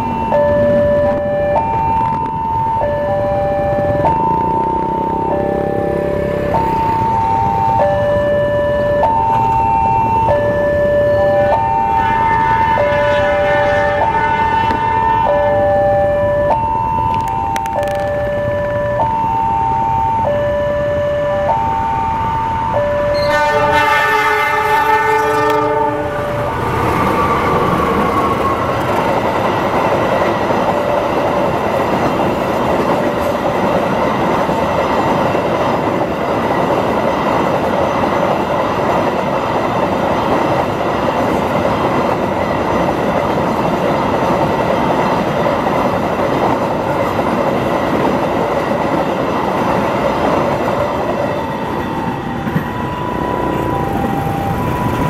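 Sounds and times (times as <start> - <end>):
train wheels rumbling on rails: 0.0 - 20.3, 20.9 - 55.0
crossing warning siren: 0.0 - 55.0
locomotive horn: 10.5 - 16.6, 22.6 - 28.8.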